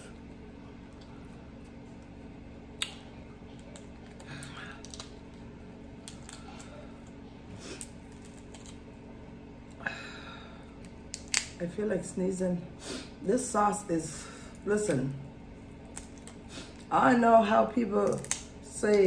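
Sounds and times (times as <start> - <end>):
faint steady hum: 0.0 - 19.0
shrimp shells cracking: 3.6 - 5.4, 6.0 - 7.2, 7.8 - 8.8, 10.8 - 11.6, 15.8 - 16.4, 18.0 - 18.5.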